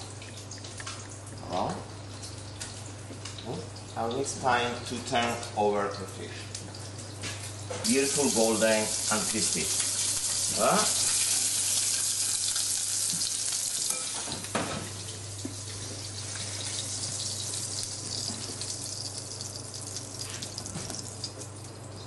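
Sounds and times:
fish sizzling in frying pan: 7.8 - 21.2.

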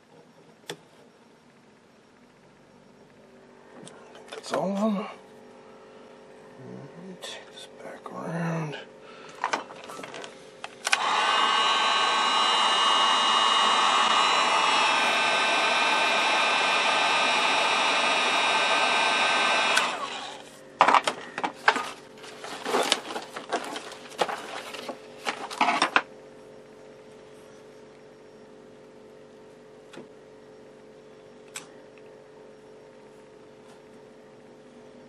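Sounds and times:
heat gun fan whining: 9.0 - 26.1, 29.6 - 34.0.

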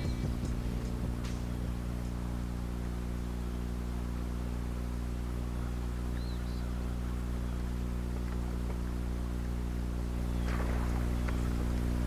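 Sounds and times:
boat motor humming: 0.0 - 12.0
high bird chirp: 5.5 - 6.8, 10.2 - 11.4.

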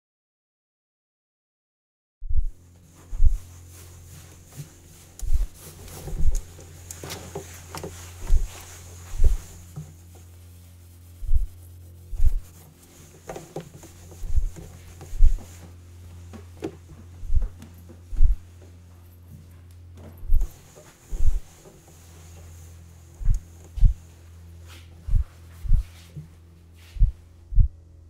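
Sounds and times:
steady low hum: 2.3 - 28.0
towel wiping steel counter: 2.8 - 18.6, 20.2 - 26.2
deep thuds: 3.1 - 3.5, 5.2 - 6.4, 8.2 - 9.6, 11.2 - 12.5, 14.2 - 15.5, 17.2 - 18.5, 20.2 - 21.5, 23.2 - 24.0, 25.0 - 25.9, 27.0 - 27.8.

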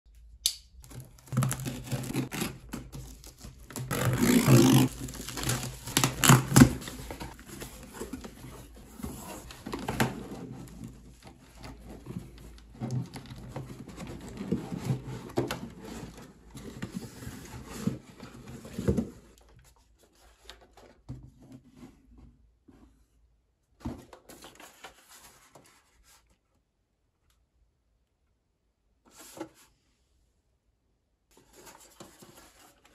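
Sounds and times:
plastic wrap crinkling and tearing: 0.8 - 8.0
cardboard rustling with knocks: 4.9 - 23.1.

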